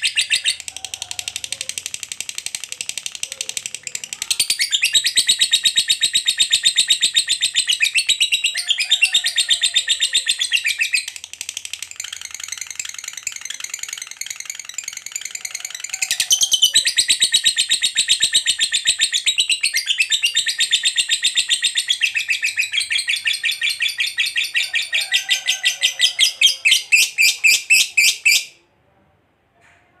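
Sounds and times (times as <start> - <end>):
lovebird chattering trill: 0.0 - 28.5.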